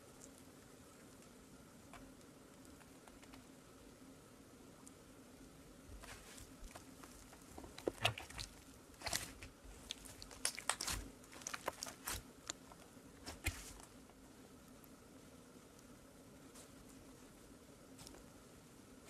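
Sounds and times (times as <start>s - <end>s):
slime squishing with clicks and pops: 7.8s - 12.6s.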